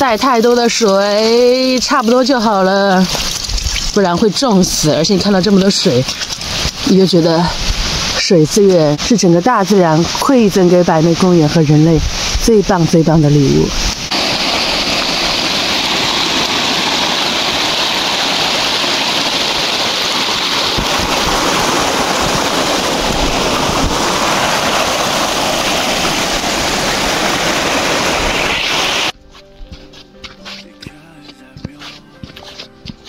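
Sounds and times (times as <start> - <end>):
water rushing over rocks: 0.1 - 12.8, 13.6 - 29.2.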